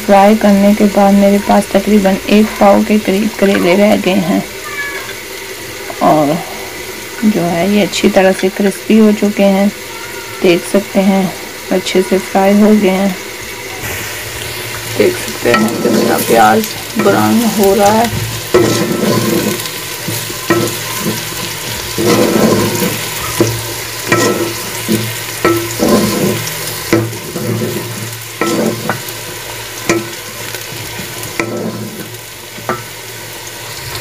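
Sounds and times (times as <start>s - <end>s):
onions sizzling in oil: 0.0s - 34.0s
wooden spoon scraping pot: 14.8s - 32.9s.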